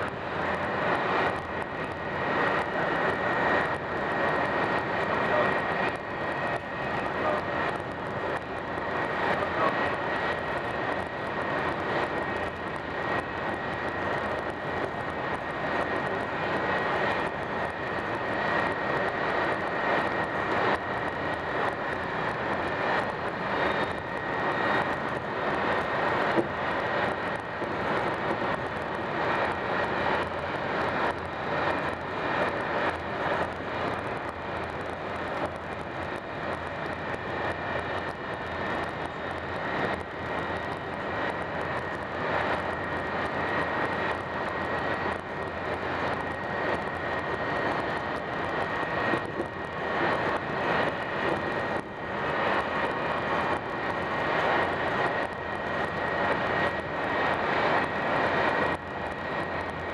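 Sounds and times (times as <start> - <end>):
thin steady whine: 0.0 - 59.9.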